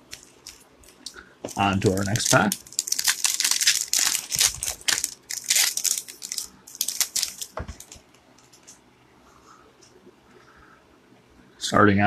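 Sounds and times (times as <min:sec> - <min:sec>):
foil wrapper crinkling: 0:00.0 - 0:08.7.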